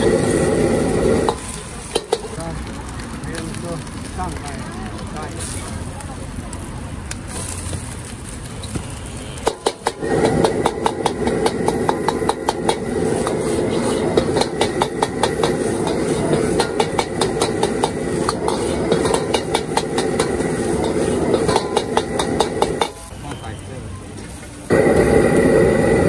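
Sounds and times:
gas burner roaring: 0:00.0 - 0:26.0
ladle clanging against wok: 0:09.4 - 0:23.1.

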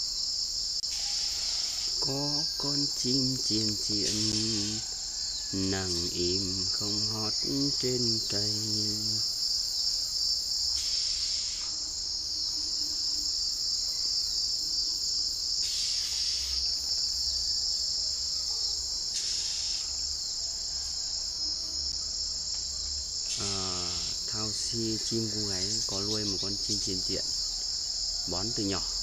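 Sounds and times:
high-pitched insect drone: 0:00.0 - 0:29.0
short bursts of hiss: 0:03.8 - 0:04.9, 0:10.8 - 0:11.7, 0:15.6 - 0:16.6, 0:19.1 - 0:20.0.

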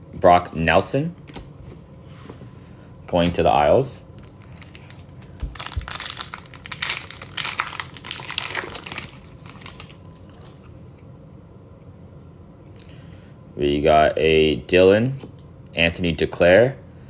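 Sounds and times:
plastic wrapper tearing and crackling: 0:04.2 - 0:10.7.

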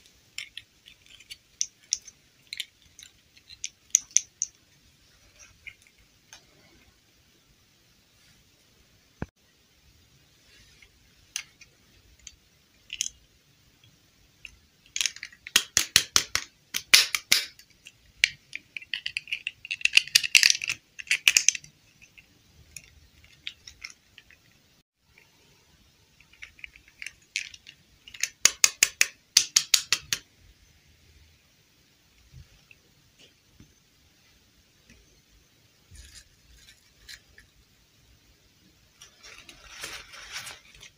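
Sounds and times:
plastic dolls clicking and crackling: 0:00.0 - 0:04.7, 0:11.3 - 0:25.4, 0:26.1 - 0:30.3.

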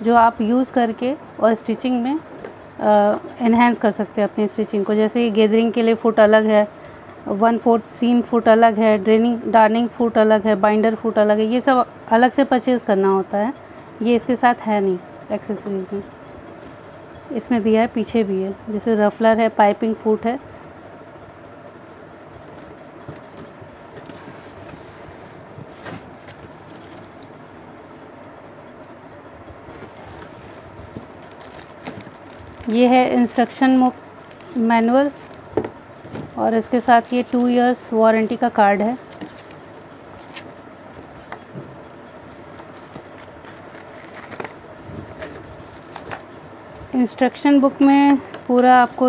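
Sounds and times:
steady background hiss: 0:00.0 - 0:49.0
cardboard and paper rustling: 0:24.0 - 0:27.2, 0:29.7 - 0:32.7, 0:39.0 - 0:41.4, 0:42.3 - 0:46.3.

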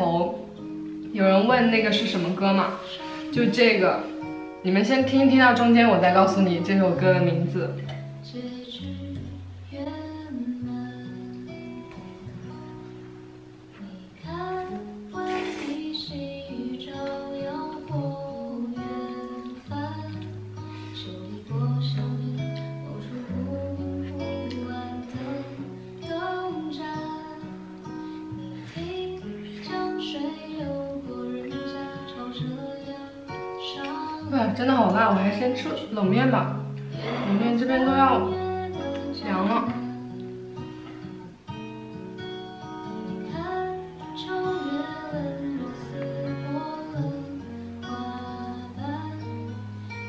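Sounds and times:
person singing: 0:00.0 - 0:12.6, 0:13.7 - 0:41.4, 0:42.7 - 0:50.0
acoustic guitar: 0:00.0 - 0:50.0.

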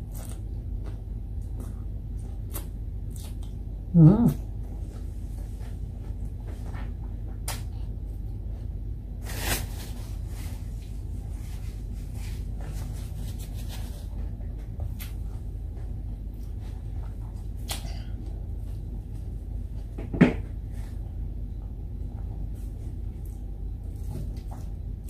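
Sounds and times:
eating sounds: 0:00.0 - 0:04.5
steady low hum: 0:00.0 - 0:25.0.

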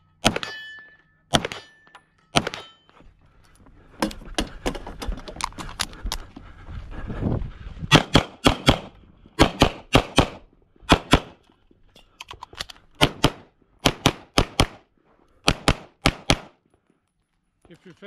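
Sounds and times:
rapid pistol shots: 0:00.2 - 0:00.6, 0:01.3 - 0:01.7, 0:02.4 - 0:02.7, 0:07.9 - 0:11.4, 0:13.0 - 0:14.8, 0:15.4 - 0:16.6.

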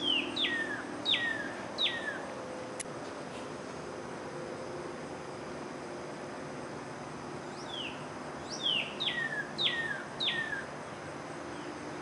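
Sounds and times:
bird whistling song: 0:00.0 - 0:02.3, 0:07.5 - 0:10.7
steady background hiss: 0:00.0 - 0:12.0.

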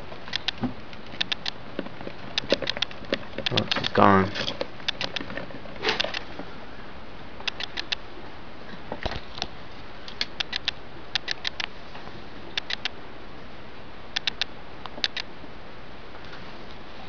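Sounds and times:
mice clicking in cage: 0:00.3 - 0:01.6, 0:02.3 - 0:06.3, 0:07.4 - 0:08.0, 0:10.1 - 0:11.7, 0:12.6 - 0:12.9, 0:14.2 - 0:15.3.

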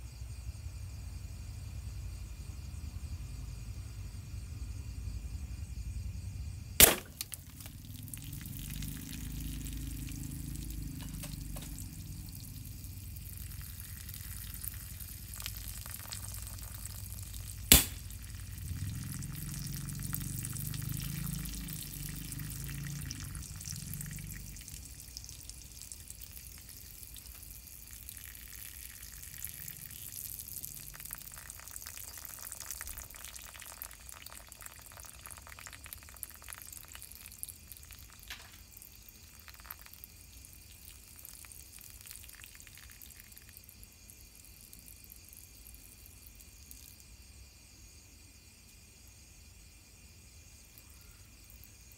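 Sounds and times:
air rifle shots: 0:06.8 - 0:07.3, 0:17.7 - 0:18.0
liquid pouring and gurgling: 0:06.8 - 0:43.8.

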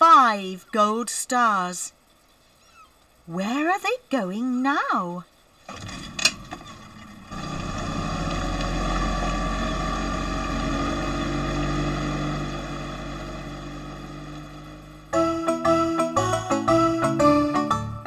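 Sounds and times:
boat engine running: 0:05.9 - 0:15.1.

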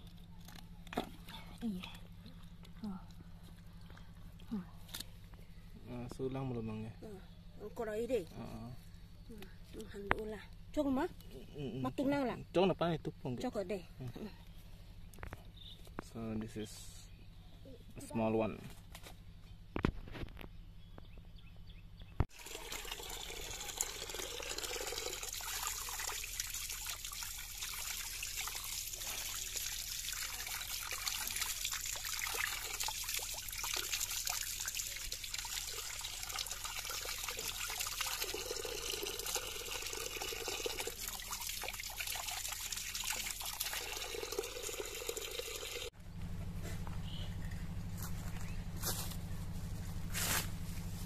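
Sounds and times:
running water splashing on ground: 0:22.3 - 0:45.9.

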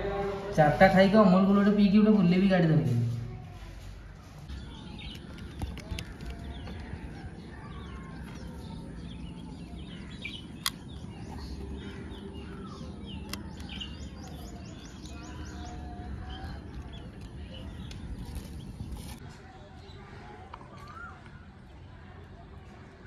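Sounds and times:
small birds chirping: 0:03.1 - 0:23.0
sharp clicks: 0:10.5 - 0:10.9.

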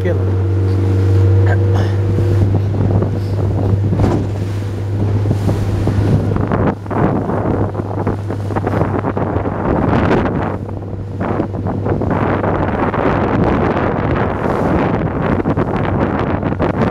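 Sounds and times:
motorboat engine droning: 0:00.0 - 0:16.9
waves splashing against hull: 0:00.0 - 0:16.9
wind buffeting microphone: 0:00.0 - 0:16.9.

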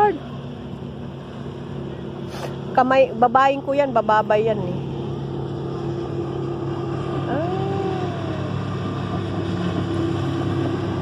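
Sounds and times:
motorboat engine drone: 0:00.0 - 0:11.0.

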